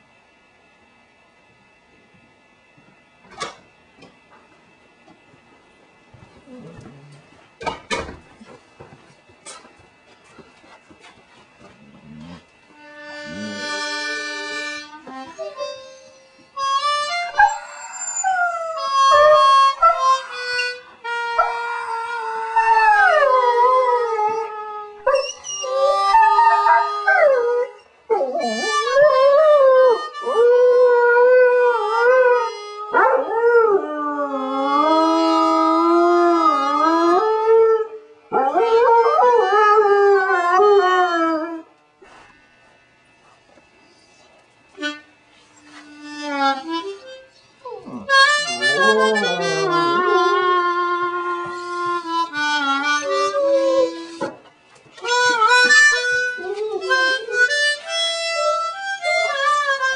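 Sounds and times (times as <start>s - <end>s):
harmonica playing: 12.7s - 33.0s, 34.4s - 37.4s, 43.9s - 59.9s
dog howling: 21.4s - 41.7s, 47.6s - 51.6s, 52.8s - 54.3s, 55.2s - 59.8s.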